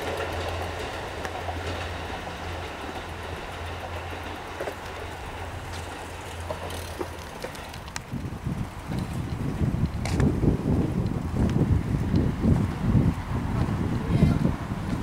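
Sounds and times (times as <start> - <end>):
sharp clicks of train wheels: 0.0 - 13.8
electric train running on tracks: 0.0 - 15.0.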